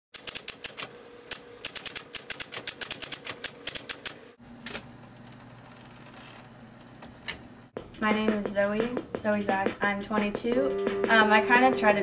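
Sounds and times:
typewriter typing: 0.2 - 4.2.

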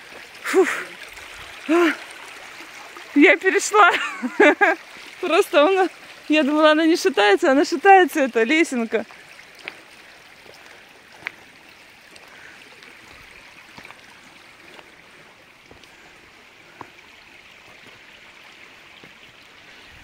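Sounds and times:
stream running over stones: 0.0 - 20.0
footsteps on stony path: 9.5 - 11.5, 13.0 - 14.9, 15.7 - 16.1, 16.7 - 17.0.

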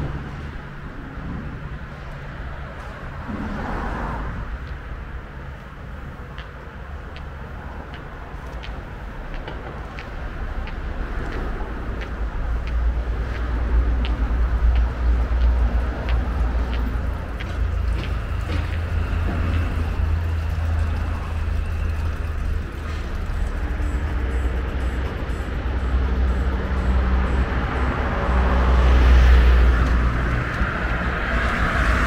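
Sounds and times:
steady low rumble: 0.0 - 32.0
footsteps on paved path: 4.6 - 24.0, 28.6 - 32.0.

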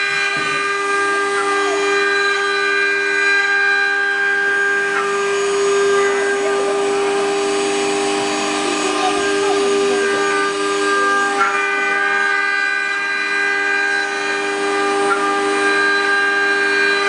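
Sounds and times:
router spindles whining: 0.0 - 17.0
rushing hiss of wood cutting: 5.0 - 12.6.

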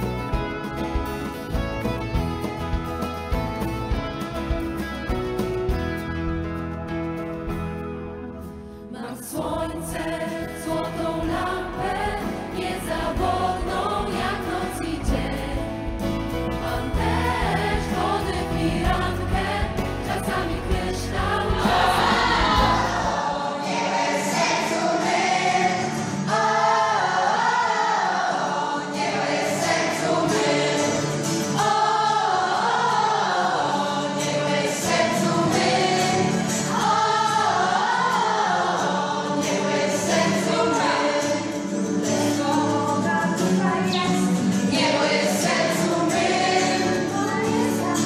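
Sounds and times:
children and adults singing: 8.9 - 15.8, 16.5 - 48.0.

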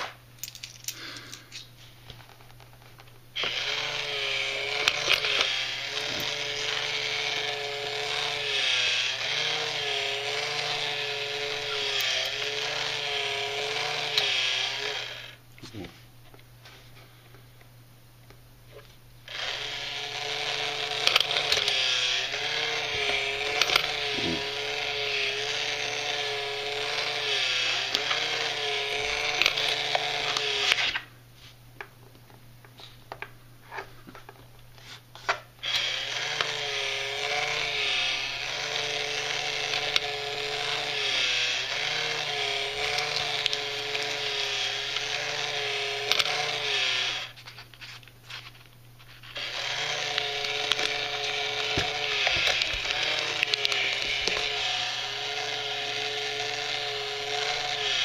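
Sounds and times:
small motor whirring: 3.4 - 15.4, 19.3 - 31.1, 35.6 - 58.0.

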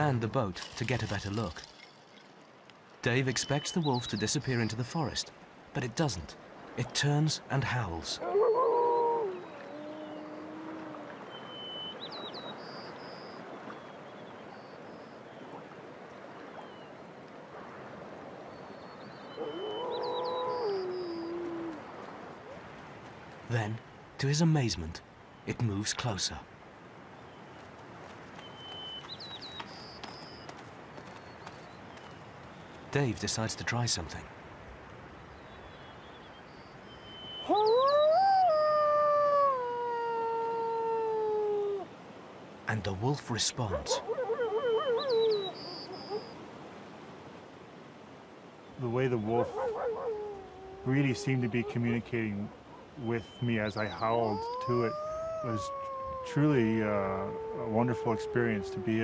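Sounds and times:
wolf howling: 8.2 - 11.2, 19.4 - 21.8, 37.4 - 41.9, 43.8 - 46.3, 49.2 - 52.0, 53.9 - 59.0.

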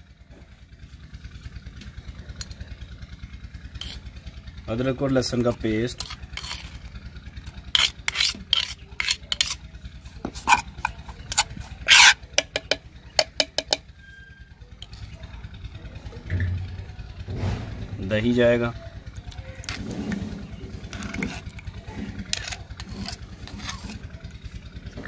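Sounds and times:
steady low hum: 0.0 - 25.0
metal spoon scraping clay bowl: 3.8 - 4.1, 5.2 - 15.2, 19.5 - 24.6.

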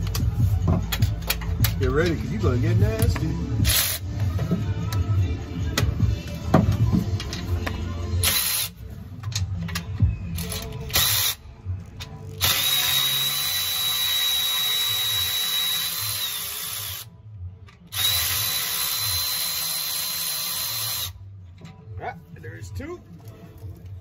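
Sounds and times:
power ratchet whining: 8.2 - 8.8, 12.4 - 17.1, 17.9 - 21.2.

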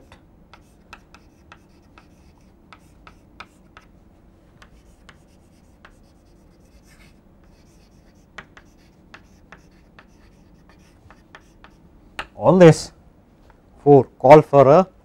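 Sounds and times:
chalk tapping on chalkboard: 0.5 - 3.9, 4.6 - 12.4
chalk scraping on chalkboard: 0.6 - 3.9, 4.6 - 11.8.

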